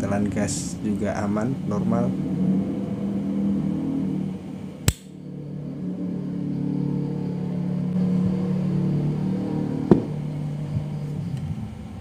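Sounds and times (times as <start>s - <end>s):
steady low hum: 0.0s - 12.0s
lighter lid snapping shut: 4.9s - 5.1s.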